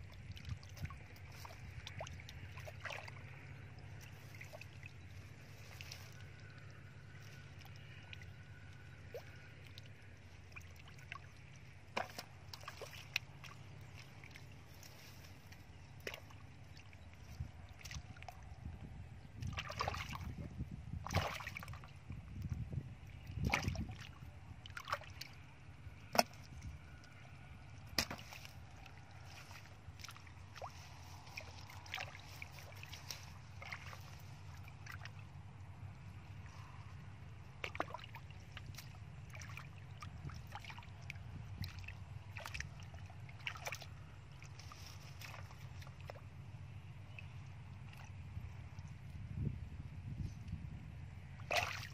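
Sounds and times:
hands splashing in muddy water: 0:00.4 - 0:08.3, 0:11.9 - 0:16.5, 0:19.4 - 0:20.4, 0:21.0 - 0:21.9, 0:23.4 - 0:24.1, 0:27.8 - 0:35.3, 0:37.6 - 0:39.7, 0:40.3 - 0:46.2, 0:51.4 - 0:51.9.

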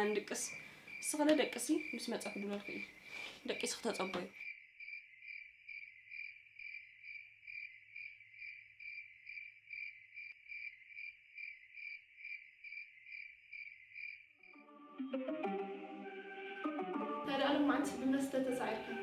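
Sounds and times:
cricket chirping: 0:00.0 - 0:14.6.

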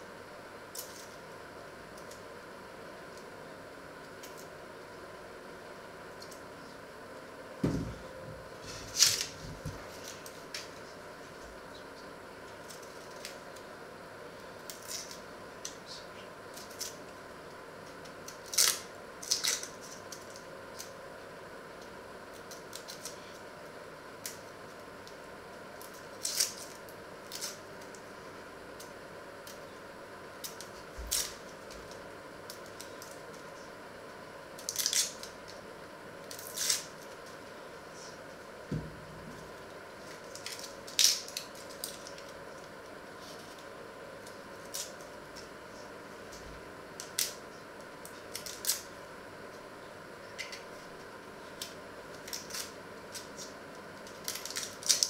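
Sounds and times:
steady hum: 0:00.0 - 0:55.0
knife peeling onion skins: 0:17.9 - 0:21.0, 0:25.8 - 0:28.0, 0:30.4 - 0:33.8, 0:34.6 - 0:35.5, 0:36.2 - 0:37.4, 0:47.0 - 0:48.9, 0:50.3 - 0:55.0.

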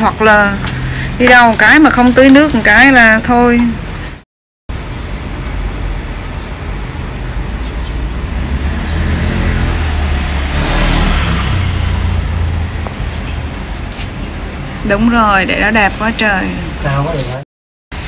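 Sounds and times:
vehicle engine rumbling past: 0:07.0 - 0:14.7.

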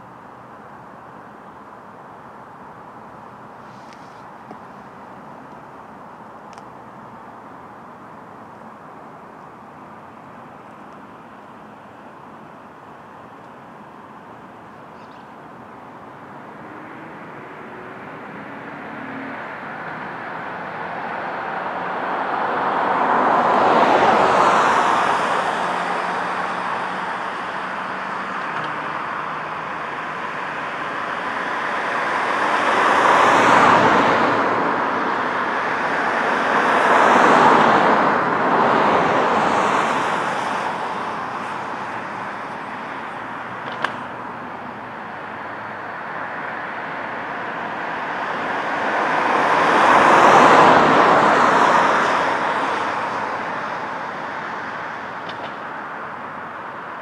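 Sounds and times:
cars driving past: 0:15.4 - 0:57.0.

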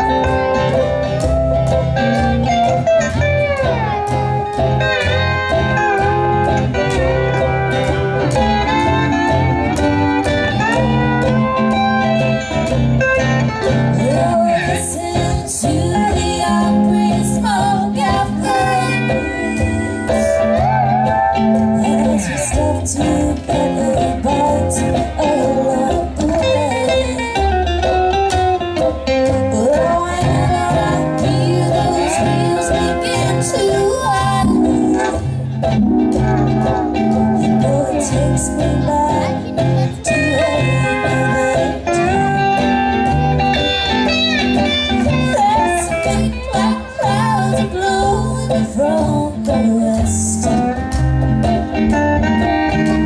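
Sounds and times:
mandolin: 0:00.0 - 0:53.0
plucked upright bass: 0:00.0 - 0:53.0
steel guitar with sliding notes: 0:00.0 - 0:53.0
woman singing: 0:13.9 - 0:20.4, 0:21.7 - 0:27.5, 0:29.2 - 0:35.2, 0:37.4 - 0:42.4, 0:45.2 - 0:50.8.

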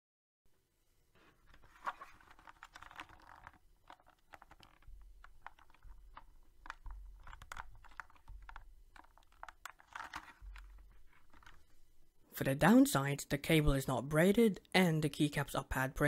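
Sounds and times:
keyboard keycaps and case clicking: 0:01.9 - 0:11.6.

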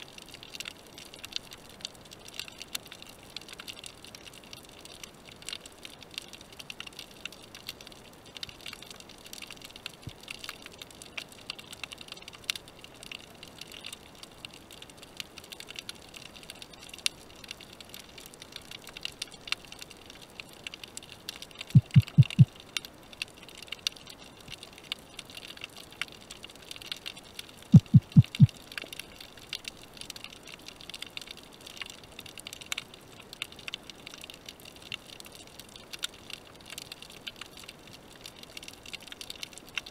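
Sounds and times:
underwater crackling and hiss: 0:00.0 - 0:39.9
low thumps: 0:21.8 - 0:22.5, 0:27.8 - 0:28.5.

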